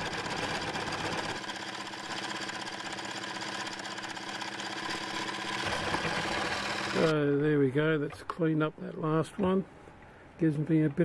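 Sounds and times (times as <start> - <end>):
lathe motor humming: 0.0 - 7.1
lathe tool cutting metal: 4.4 - 7.1.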